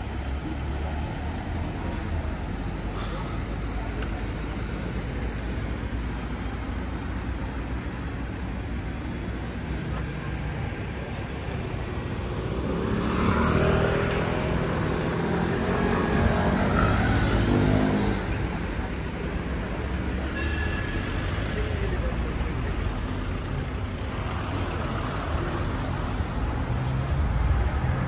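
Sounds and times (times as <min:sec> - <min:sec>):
street noise rumble: 0:00.0 - 0:28.0
vehicle engine passing by: 0:12.3 - 0:18.8.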